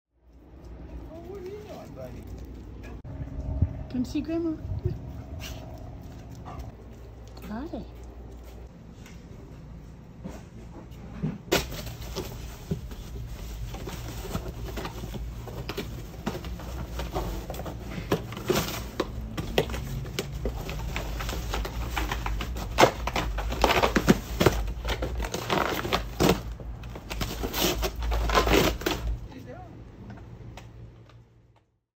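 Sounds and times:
dog ripping cardboard: 11.5s - 29.2s.

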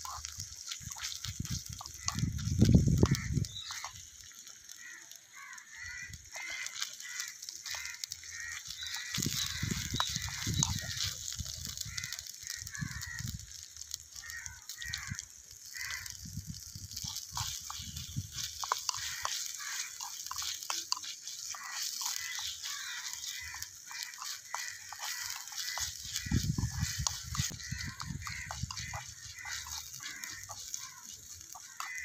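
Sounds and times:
wind on microphone: 1.2s - 3.7s, 9.0s - 13.5s, 16.1s - 18.7s, 25.7s - 29.7s
fowl calling: 1.8s - 13.3s, 14.1s - 16.2s, 16.9s - 32.0s
metal spoon scraping clay pot: 16.9s - 32.0s.

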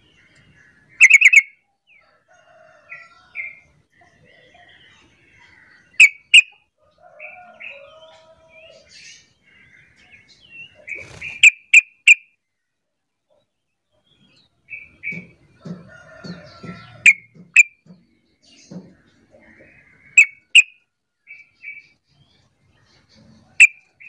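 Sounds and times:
bird chattering: 1.0s - 1.5s.

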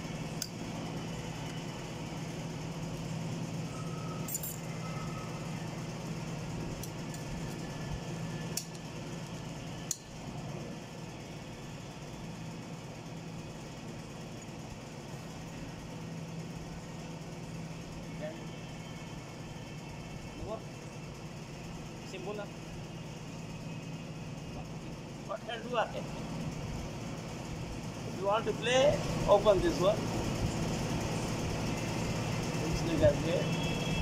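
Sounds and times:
steady low hum: 0.0s - 34.0s
steel parts clinking: 4.2s - 4.8s.

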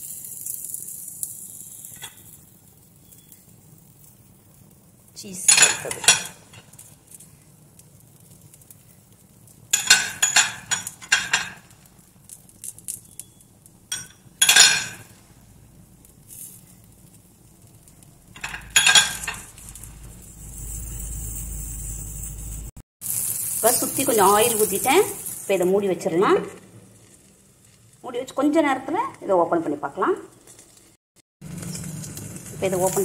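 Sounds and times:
oil sizzling on hot iron: 0.0s - 33.0s
metal spoon clinking and scraping: 5.5s - 6.6s, 9.7s - 11.7s, 13.9s - 15.1s, 18.3s - 22.7s.

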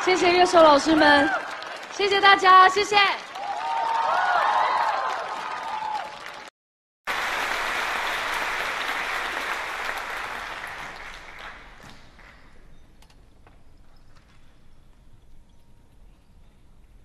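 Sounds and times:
audience applause: 0.0s - 6.5s, 7.1s - 12.4s.

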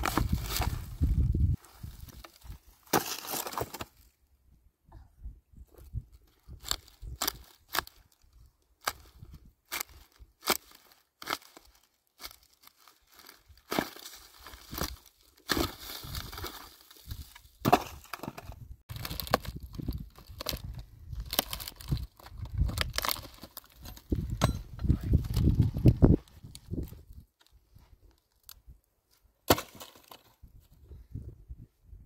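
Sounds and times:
dry branches snapping: 8.8s - 24.2s.

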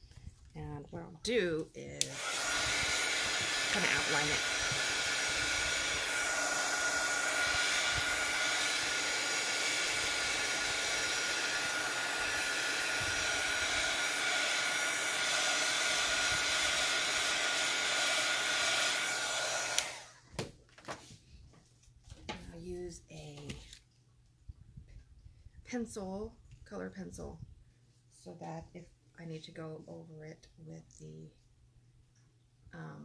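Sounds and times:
heat tool blowing hot air: 2.0s - 20.2s.

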